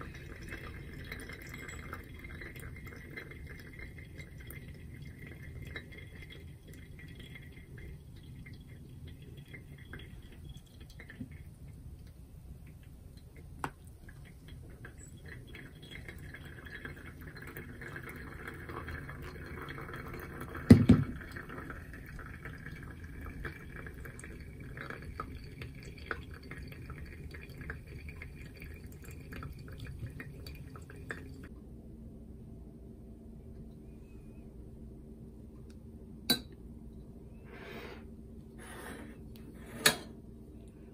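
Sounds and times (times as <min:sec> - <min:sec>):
water pouring from kettle: 0:00.0 - 0:11.9, 0:12.6 - 0:31.5
coffee dripping into glass: 0:00.0 - 0:31.5.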